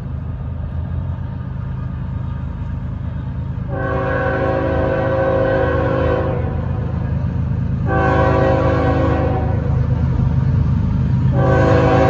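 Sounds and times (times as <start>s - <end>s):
low train rumble: 0.0s - 12.0s
locomotive air horn blasts: 3.7s - 6.8s, 7.9s - 9.8s, 11.3s - 12.0s.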